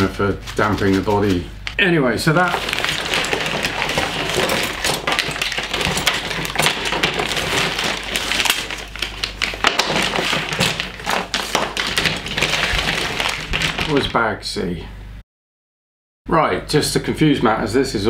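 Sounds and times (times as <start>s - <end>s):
plastic parts clattering on table: 2.4s - 14.1s.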